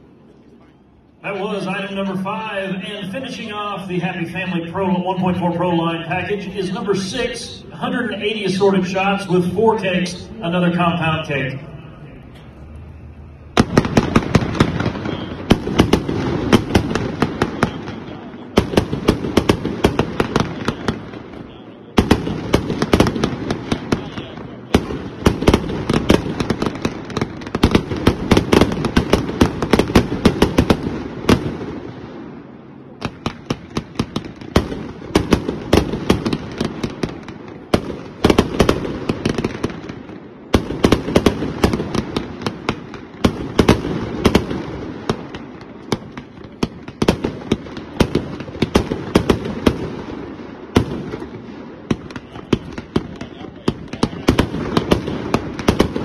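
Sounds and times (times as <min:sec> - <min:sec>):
fireworks cracks and bangs: 0:12.6 - 0:56.0.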